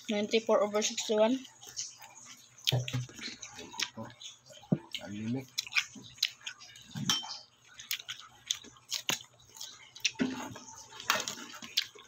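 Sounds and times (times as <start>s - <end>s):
chewing: 0.0s - 12.0s
utensil clinking against dish: 7.0s - 7.5s.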